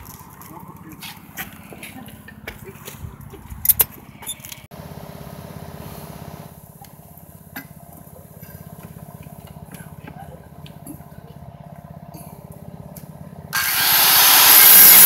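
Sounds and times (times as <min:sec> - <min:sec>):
small engine running: 0:04.7 - 0:15.0.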